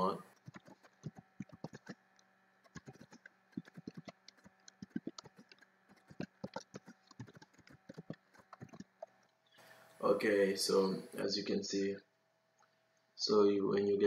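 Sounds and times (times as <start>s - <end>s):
keyboard typing: 0.0s - 2.0s, 2.6s - 9.3s.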